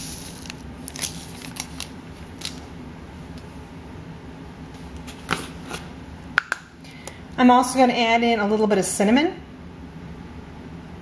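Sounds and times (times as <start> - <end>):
paper packet crinkling: 0.0 - 2.7
steady low hum: 0.0 - 11.0.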